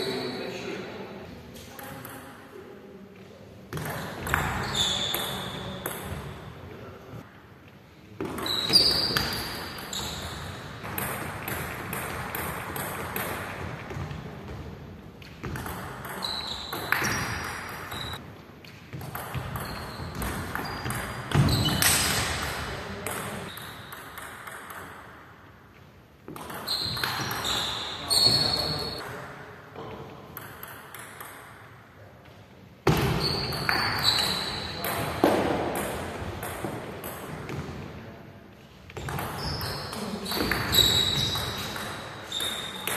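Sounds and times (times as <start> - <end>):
shoe squeaks on wooden floor: 4.4 - 5.7, 8.3 - 10.6, 16.2 - 18.2, 19.6 - 22.0, 26.6 - 29.0, 33.1 - 34.8, 39.4 - 42.9
ping pong ball clicking: 30.4 - 31.5.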